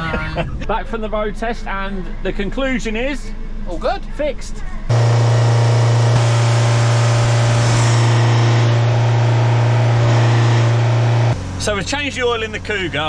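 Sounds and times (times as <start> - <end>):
diesel engine humming: 4.9 - 13.0.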